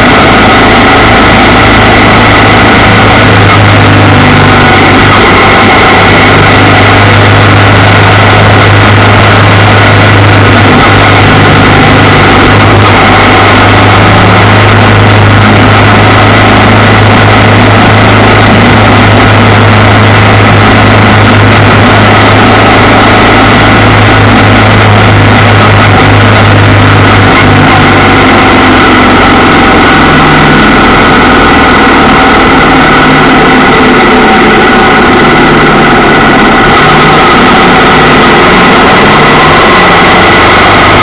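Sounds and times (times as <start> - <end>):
wind and road noise: 0.0 - 32.9, 33.8 - 41.0
motorcycle engine running: 0.0 - 41.0.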